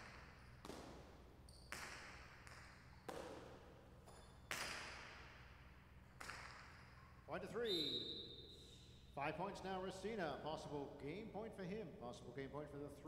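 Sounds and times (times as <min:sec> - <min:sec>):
ball cracking against walls: 0:00.0 - 0:07.0
echo in large court: 0:00.0 - 0:13.0.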